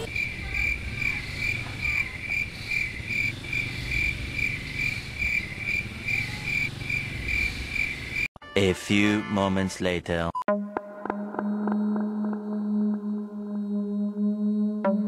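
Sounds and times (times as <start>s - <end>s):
cricket chirping: 0.0s - 8.3s, 11.5s - 15.0s.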